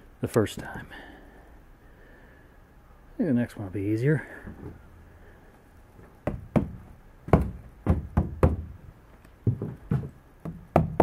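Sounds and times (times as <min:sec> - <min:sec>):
knocks on taut canoe skin: 0:06.2 - 0:08.8, 0:09.5 - 0:11.0.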